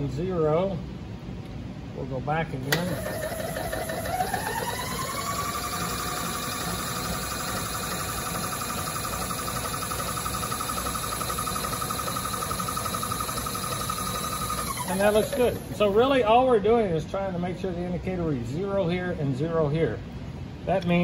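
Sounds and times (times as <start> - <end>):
power feed motor whine: 2.7 - 16.1.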